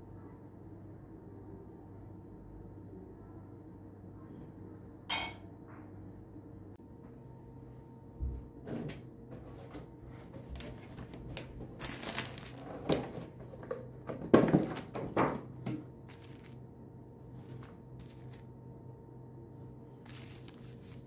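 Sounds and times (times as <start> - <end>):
rustling: 10.6 - 13.2, 16.1 - 16.6, 17.4 - 18.5, 20.0 - 21.0
kitchen knocks and clatters: 12.7 - 15.9.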